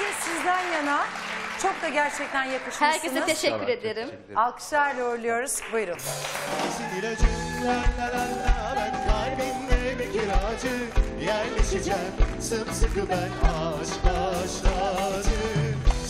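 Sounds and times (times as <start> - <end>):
live band playing upbeat song: 5.8 - 16.0.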